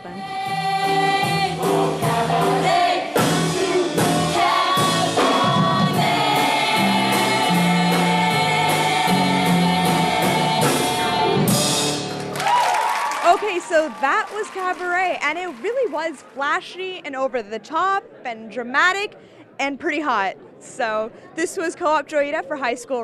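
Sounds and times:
ensemble singing with band: 0.0 - 12.0.

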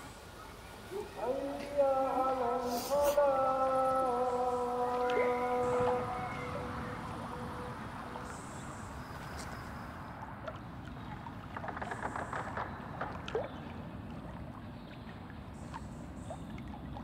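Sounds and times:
water lapping at shore and boat: 0.0 - 17.0
small splashes and ticks: 9.2 - 17.0.

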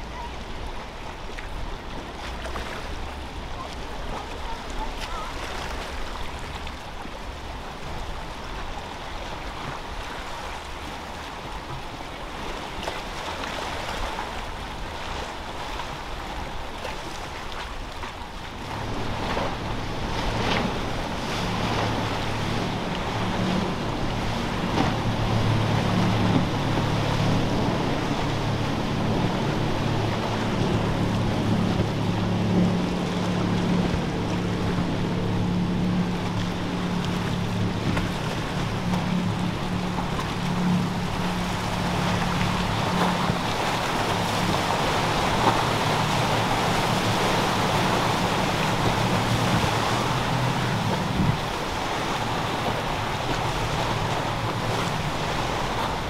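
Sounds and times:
motorboat engine droning: 0.0 - 56.0
waves: 0.0 - 56.0
wind noise: 37.6 - 53.1.

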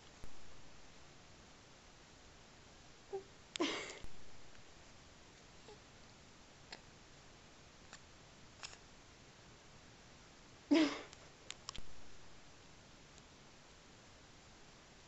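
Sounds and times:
faint clicks and rustles: 11.1 - 12.1.

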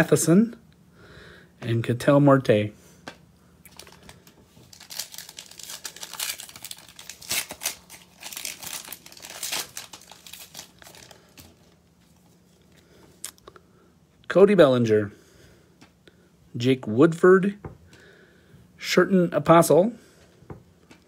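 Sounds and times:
plastic wrapper crinkling and tearing: 3.6 - 13.4.

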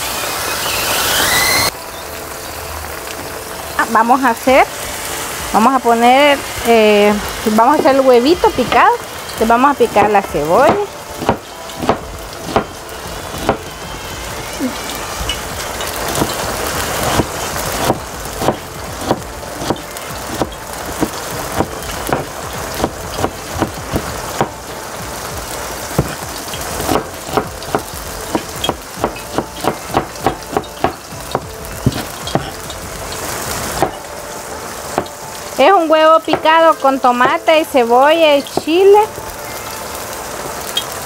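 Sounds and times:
steady hiss: 0.0 - 41.0
knife chopping on cutting board: 17.1 - 24.5, 26.0 - 26.2, 26.9 - 32.5.

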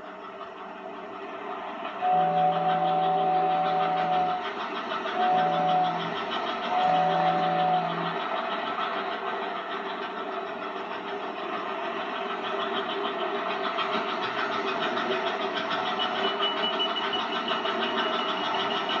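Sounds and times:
toy train motor whirring: 2.0 - 8.3.

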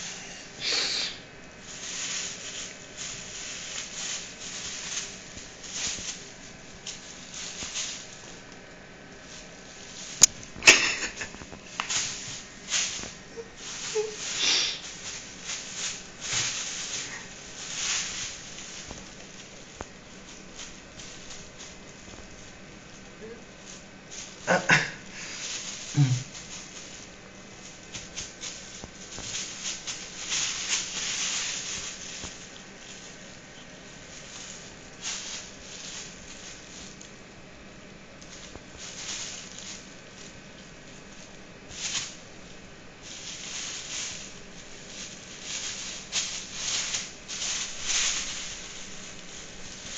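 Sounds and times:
plastic bag rustling and crinkling: 0.0 - 49.9.

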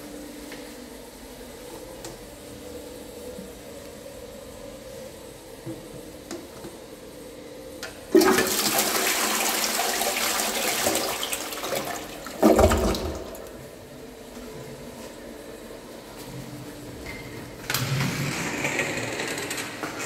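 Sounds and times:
toilet flushing: 7.8 - 14.0
toilet bowl gurgling: 8.1 - 13.7.

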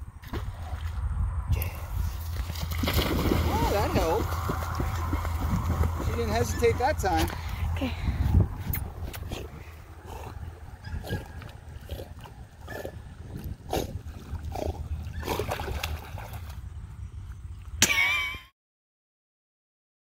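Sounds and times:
paddling splashes: 1.8 - 7.6, 10.6 - 17.8.

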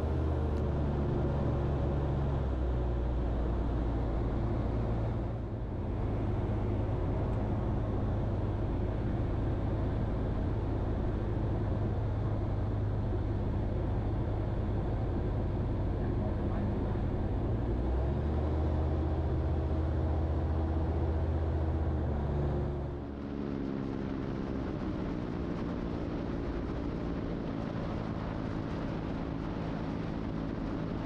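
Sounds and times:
aircraft engine drone: 22.5 - 31.0.

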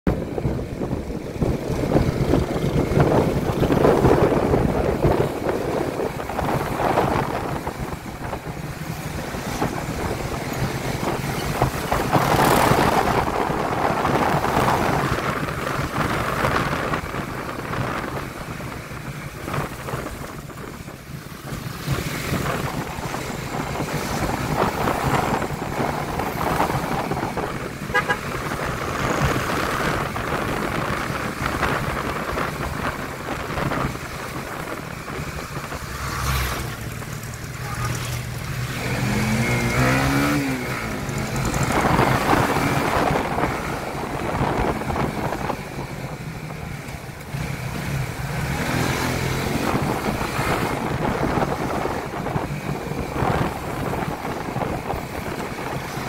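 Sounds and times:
wind and road noise: 0.0 - 56.0
motorcycle engine running: 0.1 - 56.0
vehicle horn toot: 27.9 - 28.4, 37.6 - 38.2.

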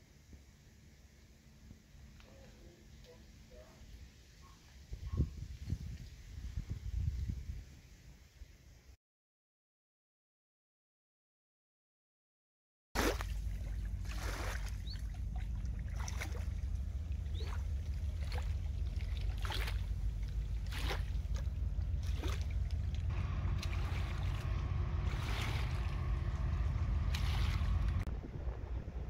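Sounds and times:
wind buffeting microphone: 4.9 - 7.8, 13.5 - 29.0
small waves slapping riverbank: 13.0 - 28.1
faint steady hum: 13.1 - 29.0.

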